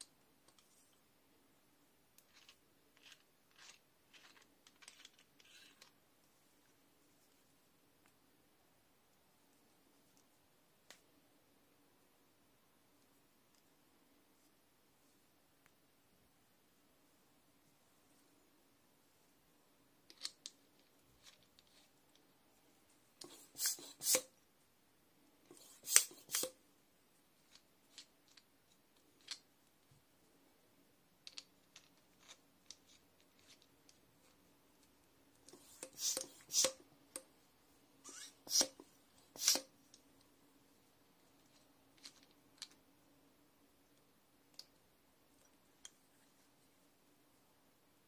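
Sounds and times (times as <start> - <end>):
bike pump connector clicks and scrapes: 25.5 - 26.5, 35.5 - 36.8.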